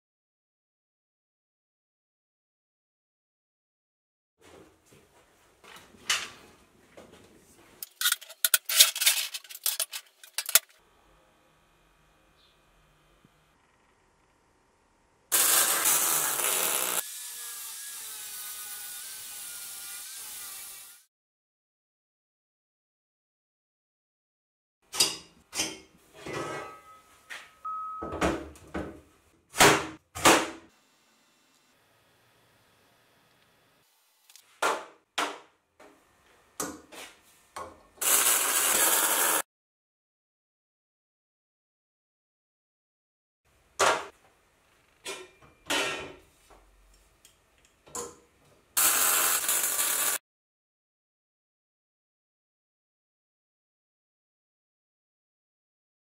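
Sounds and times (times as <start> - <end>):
metal scraping: 7.8 - 10.8, 26.1 - 27.3
short ringing tone: 26.7 - 28.2.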